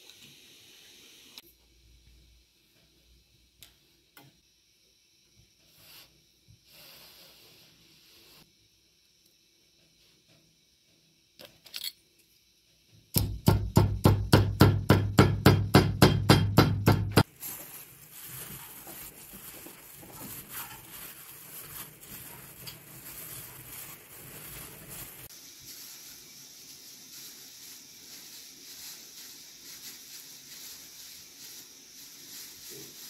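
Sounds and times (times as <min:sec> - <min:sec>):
hand kneading meat mixture: 0:16.8 - 0:26.0.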